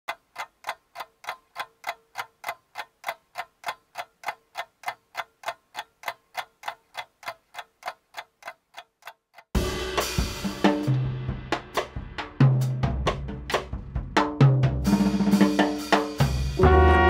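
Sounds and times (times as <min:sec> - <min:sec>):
metronome clicks ticking: 0:00.1 - 0:09.6.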